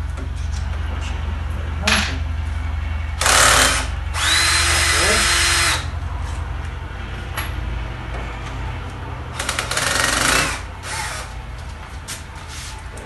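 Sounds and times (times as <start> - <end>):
drill clicking: 4.2 - 5.7
cordless drill motor hum: 4.2 - 5.8.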